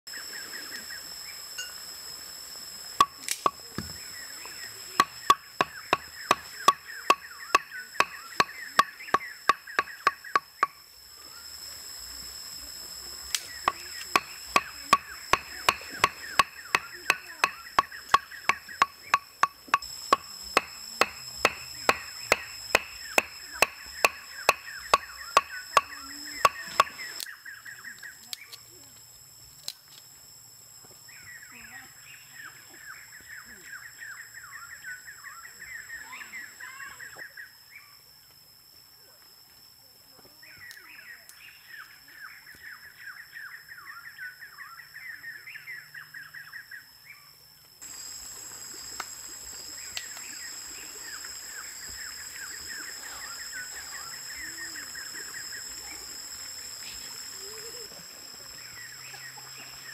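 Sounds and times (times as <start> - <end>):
stakes hammered into ground: 5.0 - 10.8, 13.3 - 27.2.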